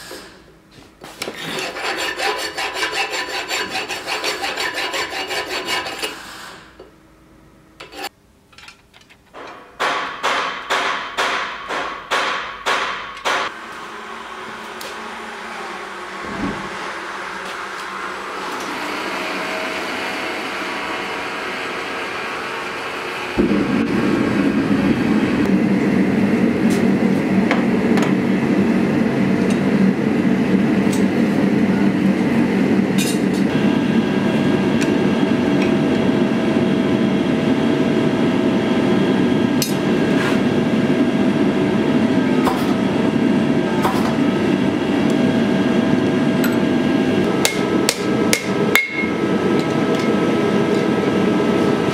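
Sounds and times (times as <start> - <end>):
gas burner rushing: 5.1 - 6.9, 13.4 - 51.9.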